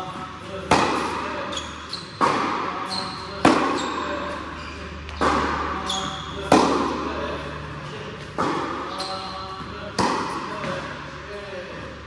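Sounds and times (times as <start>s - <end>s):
tennis ball thwacks: 0.7s - 1.2s, 3.4s - 3.8s, 6.4s - 7.0s, 8.4s - 9.0s, 10.0s - 10.8s.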